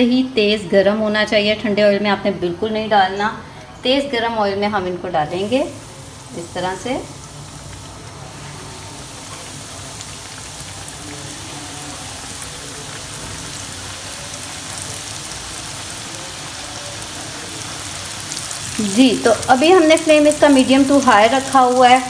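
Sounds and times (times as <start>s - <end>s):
oil sizzling and popping: 5.3s - 22.0s.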